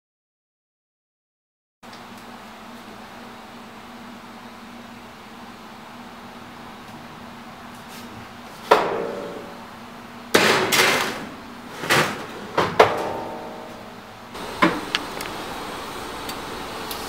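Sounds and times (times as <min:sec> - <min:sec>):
metal baking sheet clanking: 0:08.7 - 0:09.5, 0:10.4 - 0:13.8.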